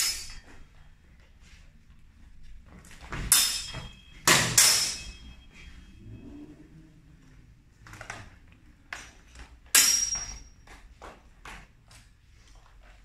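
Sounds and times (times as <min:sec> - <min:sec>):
steel swords clashing and ringing: 0:00.0 - 0:00.5, 0:03.3 - 0:05.8, 0:09.7 - 0:10.6.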